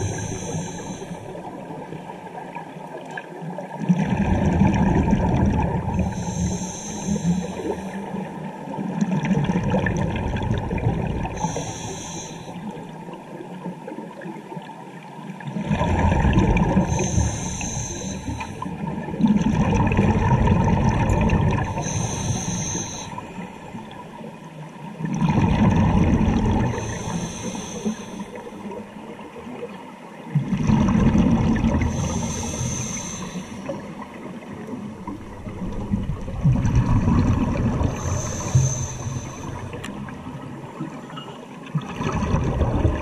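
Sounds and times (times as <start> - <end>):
regulator inhale hiss: 0.0 - 1.4, 6.0 - 8.2, 11.3 - 12.8, 16.8 - 18.7, 21.6 - 23.4, 26.7 - 28.7, 31.8 - 34.0, 37.8 - 40.0
bubbles gurgling underwater: 1.2 - 6.3, 8.1 - 11.6, 15.4 - 17.2, 18.4 - 22.1, 25.0 - 27.1, 28.3 - 32.8, 33.6 - 41.0, 41.7 - 43.0.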